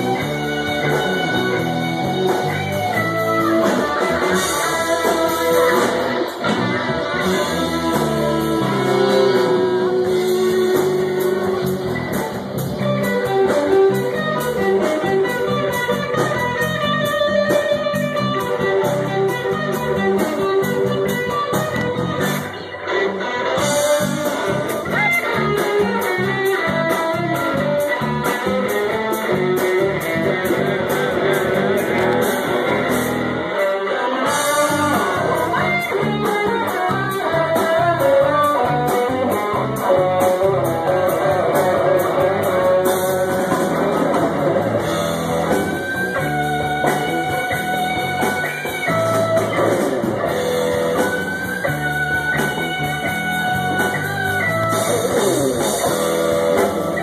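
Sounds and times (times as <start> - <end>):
drum kit: 0.0 - 57.0
electric guitar melody: 0.0 - 57.0.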